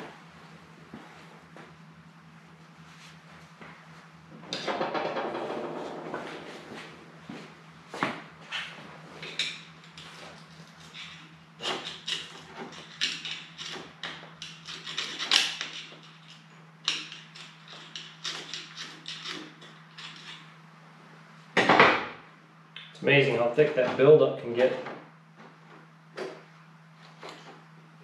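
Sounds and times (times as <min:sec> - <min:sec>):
metal tool scraping chain sprocket: 0:10.8 - 0:20.4.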